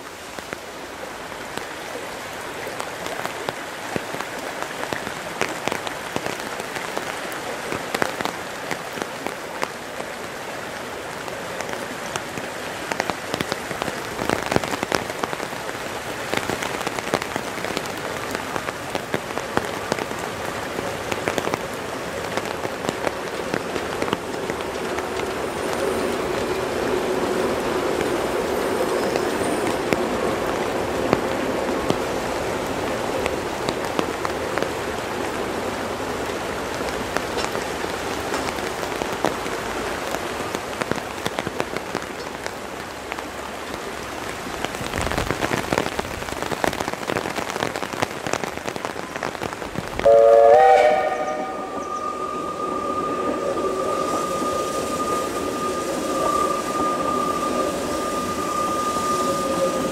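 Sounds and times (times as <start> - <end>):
raindrops ticking: 0.0 - 50.2
river rushing: 0.0 - 59.9
steam train low hum: 22.0 - 33.8, 50.0 - 59.9.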